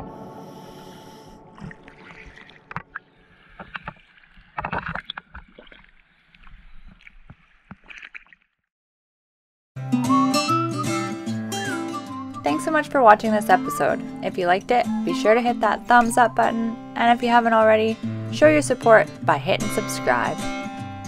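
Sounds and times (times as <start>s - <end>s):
water splashing and sloshing: 1.3s - 8.7s.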